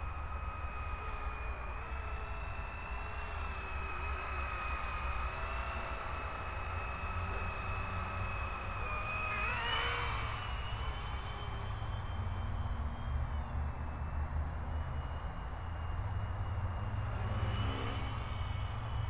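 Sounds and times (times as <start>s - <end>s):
rc helicopter motor whine: 0.0s - 19.0s.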